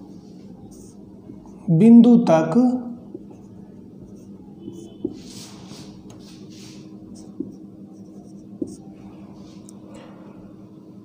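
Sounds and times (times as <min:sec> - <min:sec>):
marker writing on whiteboard: 0:00.6 - 0:01.7, 0:03.0 - 0:09.7
light taps: 0:07.4 - 0:07.6.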